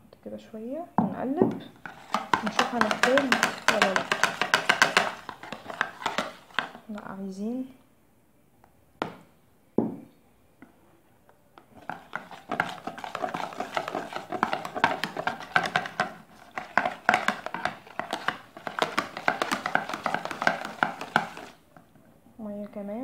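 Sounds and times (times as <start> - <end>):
whisk knocks: 1.8 - 6.7
whisk beating batter: 1.8 - 6.8, 11.8 - 21.6.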